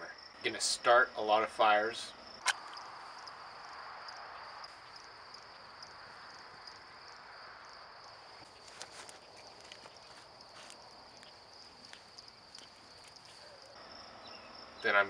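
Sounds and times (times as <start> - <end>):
crickets chirping: 0.0 - 15.0
sharp click: 2.4 - 2.8.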